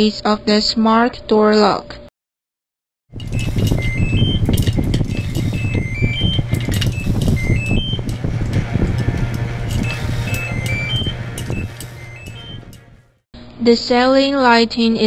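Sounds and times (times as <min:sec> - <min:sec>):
low drone: 0:03.2 - 0:13.2.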